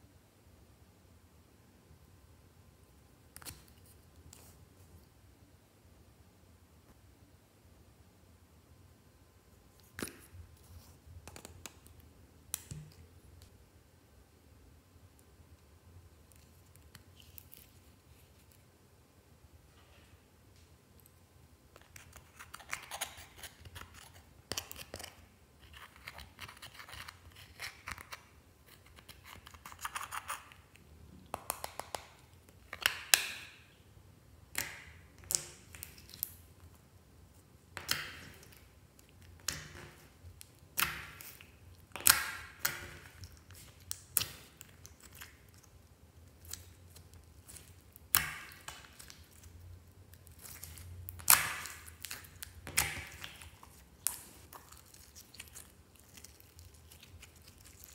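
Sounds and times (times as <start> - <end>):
slime crackling: 37.8 - 57.9
sticky slime pops and squelches: 39.4 - 45.3, 50.3 - 55.6.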